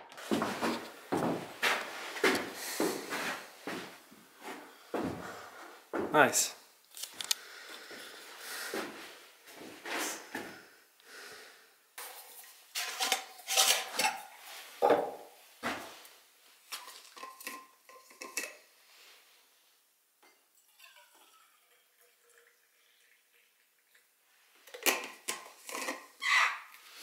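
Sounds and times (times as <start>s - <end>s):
metal thermos and cup clinking: 12.0s - 15.3s, 16.7s - 18.7s, 24.6s - 26.2s
hot liquid pouring into cup: 20.3s - 24.1s.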